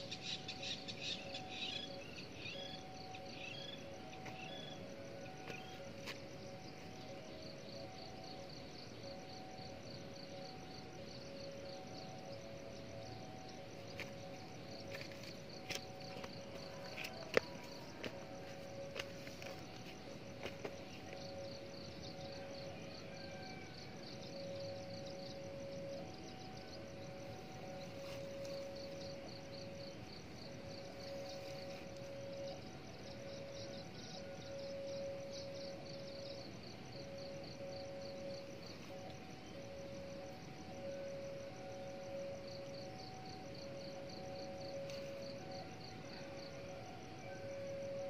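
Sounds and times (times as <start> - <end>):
faint steady tone: 0.0 - 48.0
insects chirping: 0.0 - 48.0.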